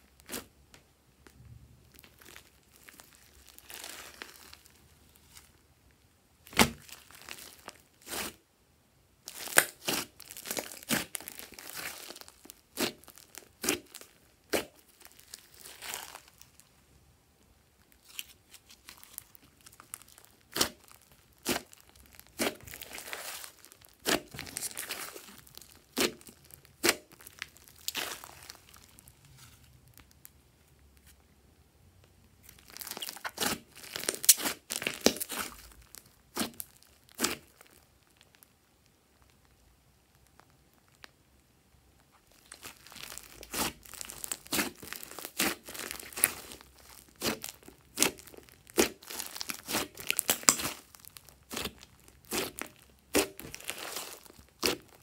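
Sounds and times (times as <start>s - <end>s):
slime squelching and popping: 6.4s - 8.4s, 9.3s - 16.6s, 17.9s - 29.2s, 32.4s - 38.5s, 42.1s - 55.0s.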